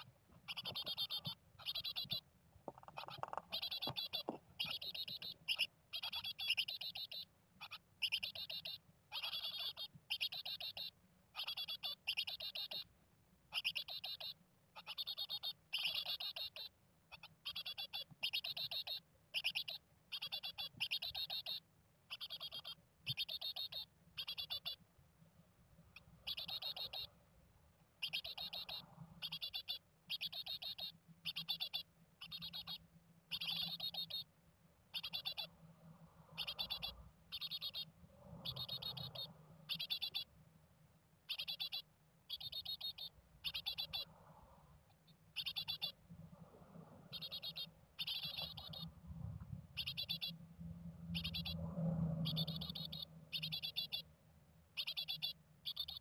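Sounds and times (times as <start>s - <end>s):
nestlings calling: 0.0s - 12.9s, 13.5s - 24.8s, 26.0s - 27.1s, 28.0s - 34.3s, 34.9s - 35.6s, 36.2s - 40.3s, 41.3s - 44.2s, 44.9s - 46.0s, 46.7s - 49.0s, 49.7s - 50.4s, 51.1s - 54.1s, 54.8s - 56.0s
faint low hum: 0.0s - 56.0s.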